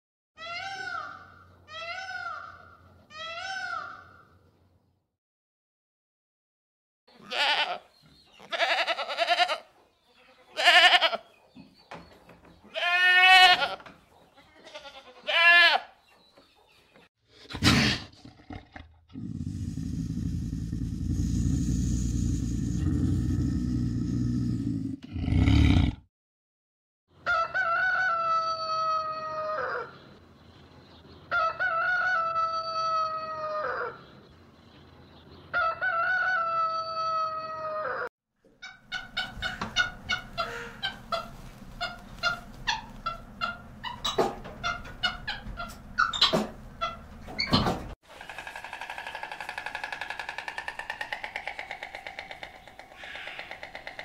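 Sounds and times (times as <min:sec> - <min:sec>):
bleating calls: 0:07.1 - 0:11.2, 0:12.7 - 0:13.8, 0:14.4 - 0:15.9.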